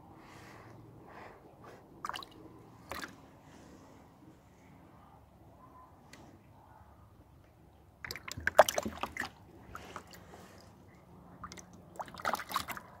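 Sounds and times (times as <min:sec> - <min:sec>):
water splashing in a plastic tub: 0:02.0 - 0:03.2, 0:07.8 - 0:13.0.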